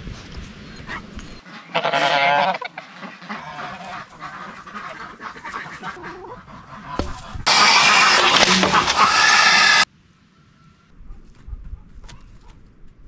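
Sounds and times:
goose honking: 1.6s - 9.8s.

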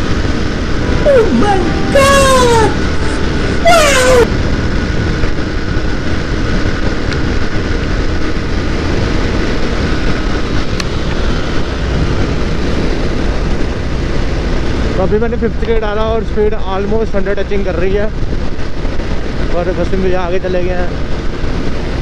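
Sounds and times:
falling-pitch sound effect: 0.7s - 4.4s
wind rushing over microphone: 3.2s - 22.0s.

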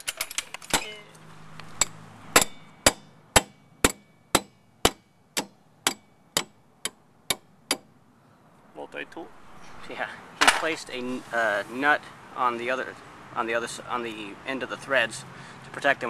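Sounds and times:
metal-on-metal hammer strikes: 1.8s - 7.9s.

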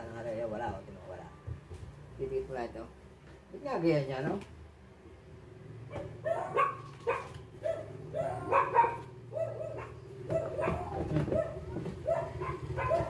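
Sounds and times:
dog barking: 5.9s - 13.0s.

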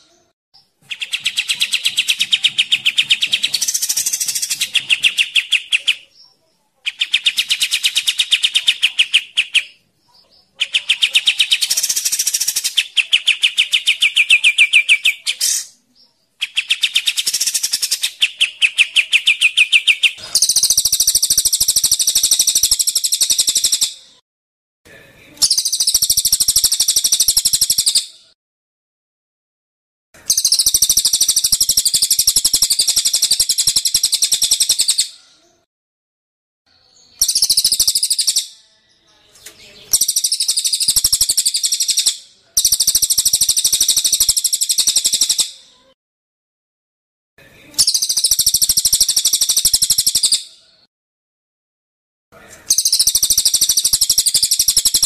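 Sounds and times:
harsh high-pitched bird rattling: 0.9s - 6.0s, 10.6s - 15.7s, 16.4s - 24.0s, 25.4s - 28.0s, 30.3s - 35.1s, 37.2s - 38.5s, 39.9s - 45.6s, 47.8s - 50.4s, 52.7s - 55.0s.

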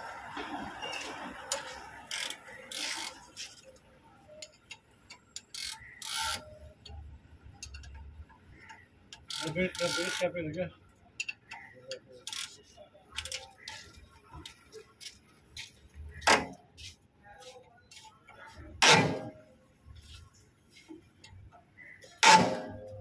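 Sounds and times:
spanner ratcheting on metal: 1.6s - 3.4s, 5.3s - 6.6s, 9.2s - 10.4s, 12.2s - 13.9s.

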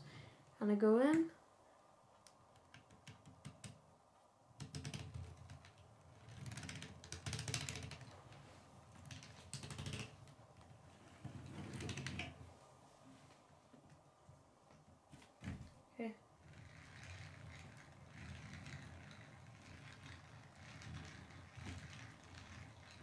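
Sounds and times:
plastic gears clicking and rattling: 4.6s - 8.1s, 16.4s - 23.0s.

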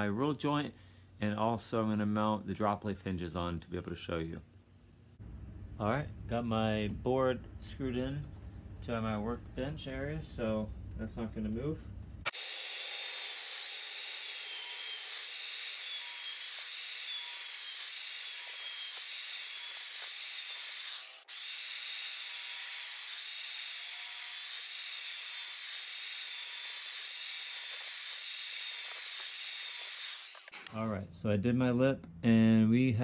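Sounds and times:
router cutting wood: 12.3s - 30.9s.

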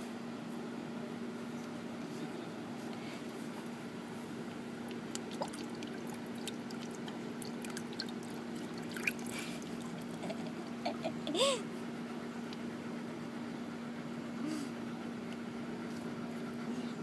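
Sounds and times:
steady low hum: 0.0s - 17.0s
water splashing in bucket: 4.8s - 10.6s.

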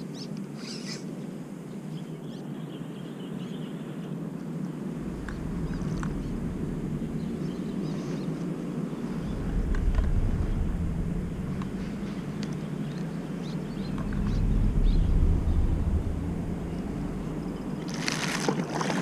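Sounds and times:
wind rumbling on microphone: 4.1s - 19.0s.

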